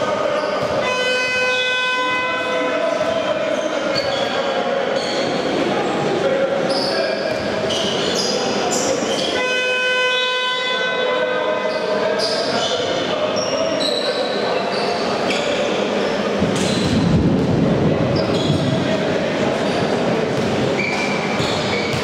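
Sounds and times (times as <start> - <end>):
hubbub of players and spectators: 0.0 - 22.0
shoes squeaking on court: 3.5 - 5.4, 6.7 - 9.4, 18.2 - 18.8, 19.6 - 22.0.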